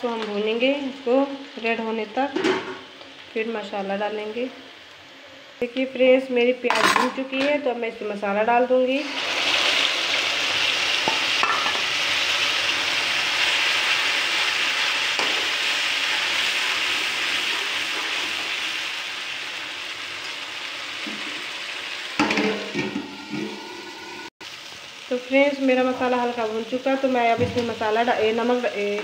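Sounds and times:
paste sizzling in hot oil: 9.0s - 29.0s
metal spatula knocking a pan: 22.2s - 23.6s.

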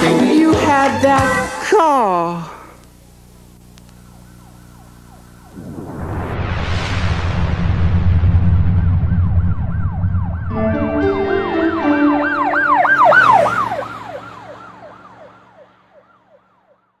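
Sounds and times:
siren-like electronic tone: 4.1s - 6.9s, 8.5s - 16.7s
held synth chords: 10.4s - 14.6s.

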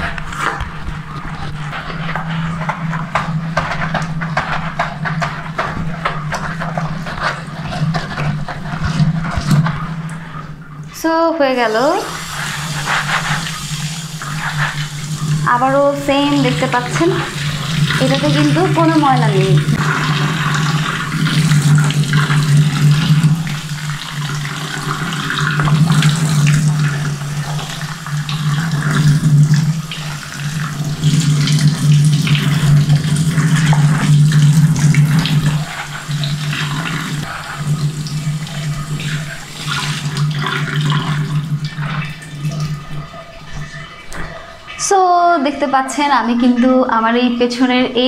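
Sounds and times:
gloves scrubbing: 0.0s - 10.0s, 11.8s - 37.7s.

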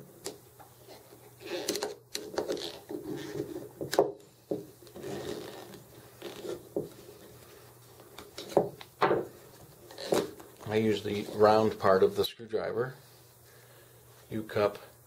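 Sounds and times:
rubber scraping on steel: 5.0s - 6.6s.

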